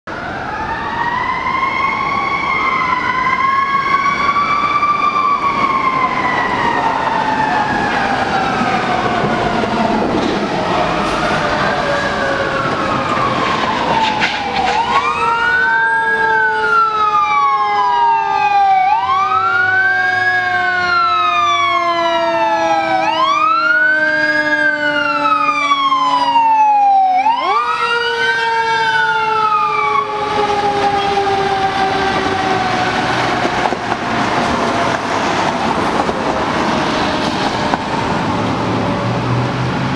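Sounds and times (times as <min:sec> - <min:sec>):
engine and road noise: 0:00.1 - 0:39.9
fire engine siren wailing: 0:00.1 - 0:39.9.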